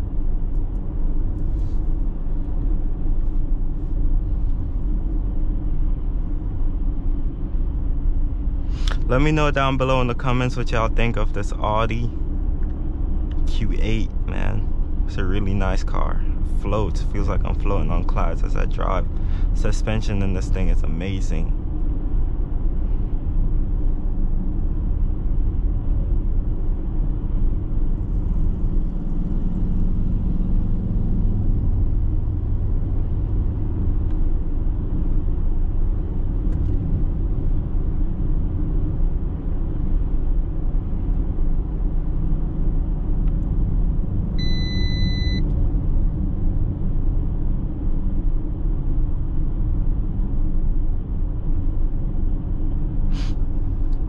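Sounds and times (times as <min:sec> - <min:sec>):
road and tyre rumble: 0:00.0 - 0:54.0
electronic beep: 0:44.4 - 0:45.4.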